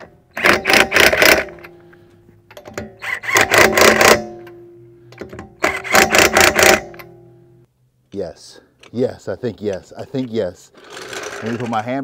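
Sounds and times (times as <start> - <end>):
impact wrench hammering: 2.6 - 7.3.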